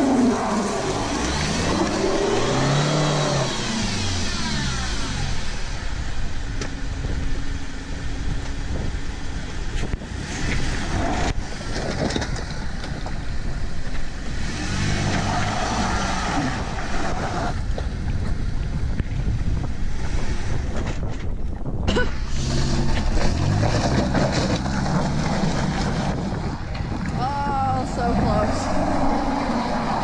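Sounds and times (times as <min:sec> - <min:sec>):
vehicle engine pulling slowly: 0:00.0 - 0:30.0
stones knocking under tyres: 0:22.6 - 0:27.2.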